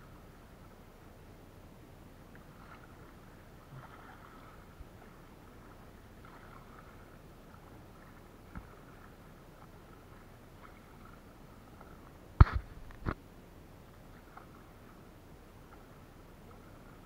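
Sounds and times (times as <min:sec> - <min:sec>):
paddle water swishes: 0:00.0 - 0:17.0
sharp knock: 0:12.4 - 0:13.2.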